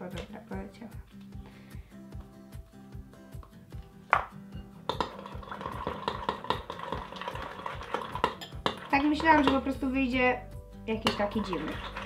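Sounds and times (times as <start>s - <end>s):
background music with beat: 0.0s - 10.9s
spoon scraping glass bowl: 4.9s - 9.8s, 11.0s - 12.0s.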